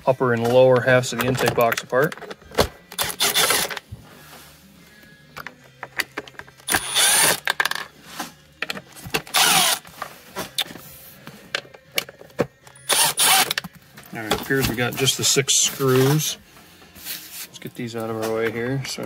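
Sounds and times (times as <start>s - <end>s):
cordless drill whirring: 3.0s - 3.7s, 6.7s - 7.4s, 9.3s - 9.8s, 12.9s - 13.6s.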